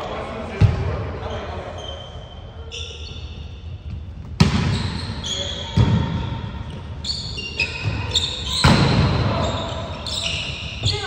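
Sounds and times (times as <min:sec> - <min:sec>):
sneakers squeaking on court: 0:00.6 - 0:11.0
volleyball hits echoing: 0:03.9 - 0:05.0, 0:05.6 - 0:06.9, 0:07.8 - 0:11.0.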